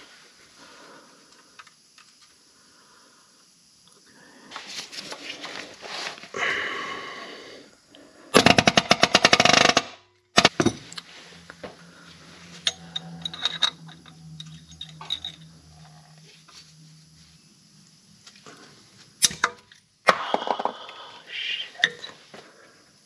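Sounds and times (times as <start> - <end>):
hand ratchet clicking: 8.4 - 10.5.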